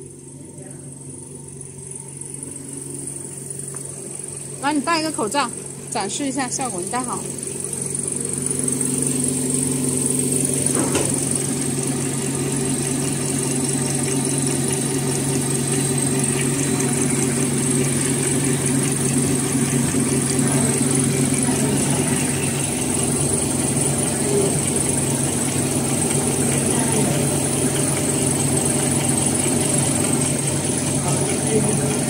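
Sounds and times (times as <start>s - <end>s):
machine humming: 0.0s - 32.0s
rapid mechanical ticking: 11.3s - 32.0s.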